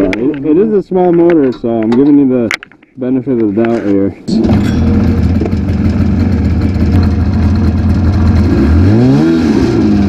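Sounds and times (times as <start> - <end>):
two-stroke engine idling and revving: 4.3 - 10.0.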